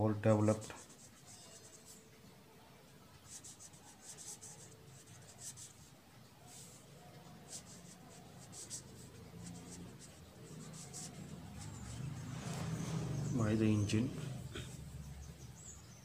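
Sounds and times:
pen scratching on paper: 0.4 - 2.1, 3.2 - 13.0.

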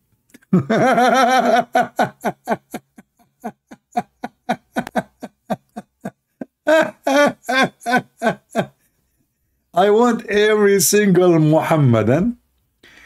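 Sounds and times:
man laughing: 0.5 - 8.8.

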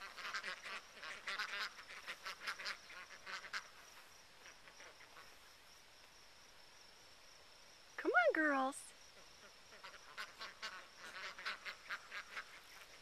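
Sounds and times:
ducks quacking: 0.0 - 5.4, 9.4 - 13.0.

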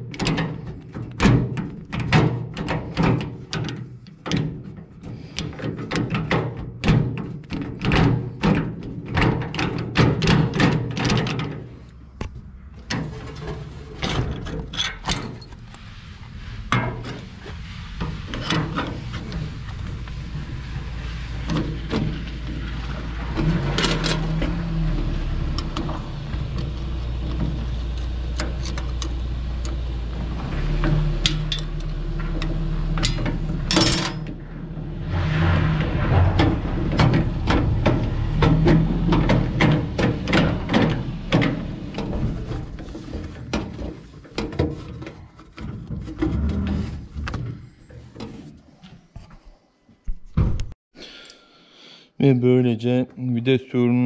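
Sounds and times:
gear lever clunks and clicks: 25.5 - 29.9.

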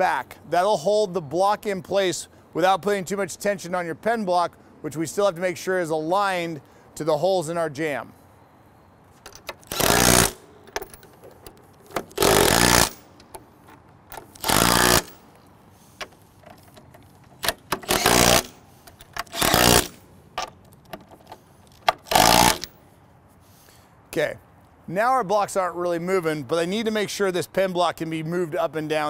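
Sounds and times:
impact driver bursts: 9.5 - 11.0, 11.9 - 13.2, 14.2 - 15.2, 17.4 - 20.0, 21.9 - 22.7.

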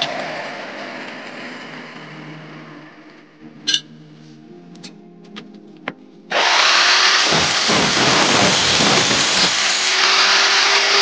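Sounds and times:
angle grinder running: 0.0 - 2.6, 6.3 - 11.0
grinder disc grinding metal: 6.3 - 11.0.

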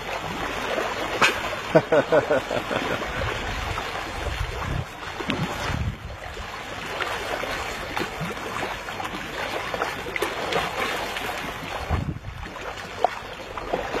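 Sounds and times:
water lapping and splashing: 0.0 - 14.0
wind rumbling on microphone: 2.9 - 6.6, 11.6 - 12.7.

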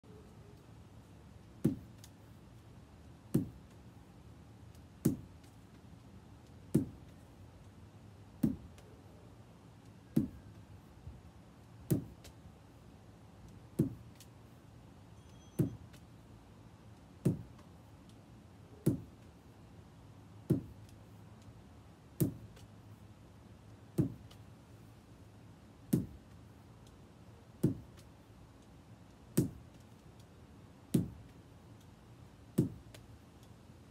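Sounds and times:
lacrosse ball thuds: 1.6 - 2.1, 3.3 - 3.8, 5.0 - 5.5, 6.7 - 7.2, 8.4 - 8.9, 10.2 - 10.6, 11.8 - 12.4, 13.7 - 14.3, 15.6 - 16.0, 17.2 - 17.7, 18.8 - 19.2, 20.5 - 21.0, 22.2 - 22.7, 23.9 - 24.4, 25.9 - 26.3, 27.6 - 28.1, 30.9 - 31.3, 32.6 - 33.0.

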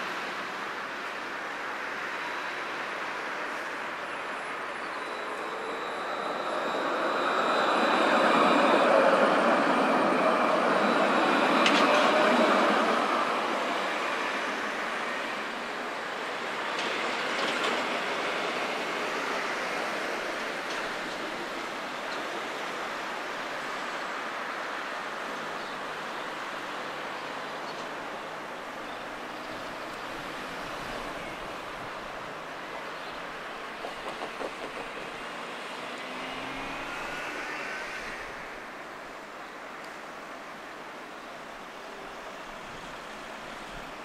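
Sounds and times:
passing road traffic: 0.0 - 44.0
tram rolling along track: 0.0 - 44.0
car driving by close: 35.3 - 38.7.

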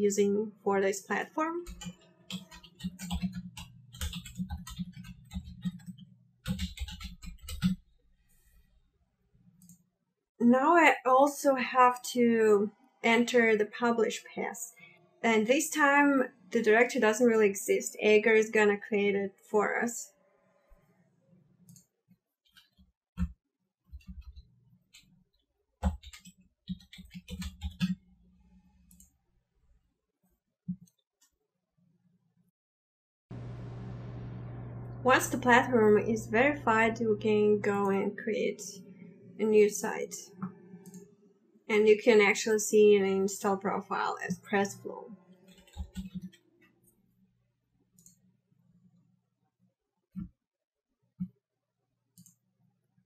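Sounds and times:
keyboard typing: 1.6 - 7.8, 25.8 - 28.0, 45.4 - 46.4.

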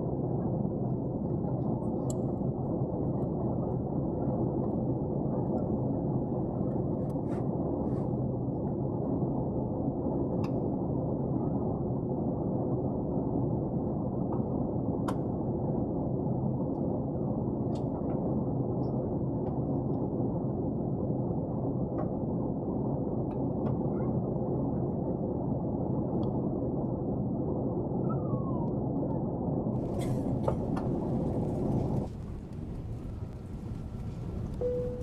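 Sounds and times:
aircraft cabin engine rush: 29.8 - 35.0.

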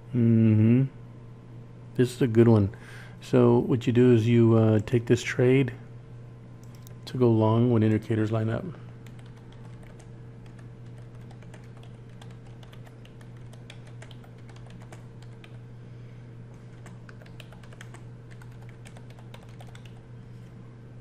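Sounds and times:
keyboard typing: 9.0 - 15.6, 16.5 - 20.0.

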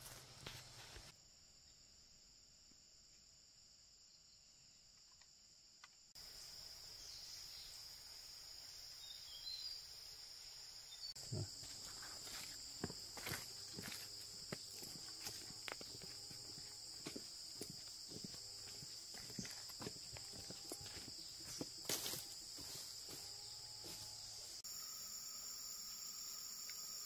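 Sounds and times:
high-pitched insect drone: 6.2 - 27.0
footsteps on dirt path: 11.2 - 24.2.

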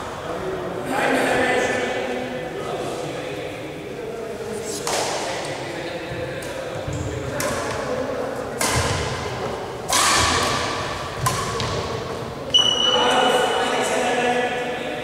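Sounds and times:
rackets hitting shuttlecock: 4.8 - 5.4, 6.4 - 12.8.

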